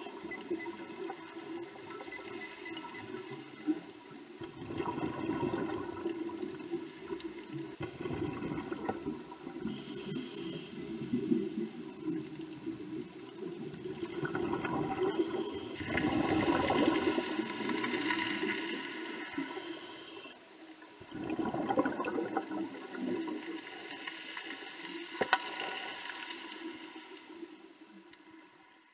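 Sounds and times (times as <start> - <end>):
scuba regulator breathing: 9.7 - 10.9, 15.0 - 16.3, 19.4 - 20.4.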